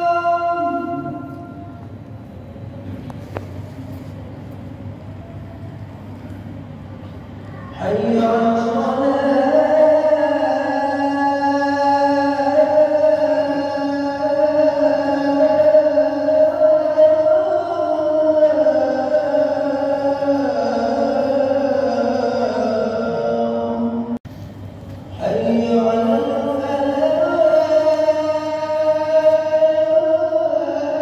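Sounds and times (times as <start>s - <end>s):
man chanting: 0.0s - 1.8s, 7.5s - 24.2s, 25.1s - 31.0s.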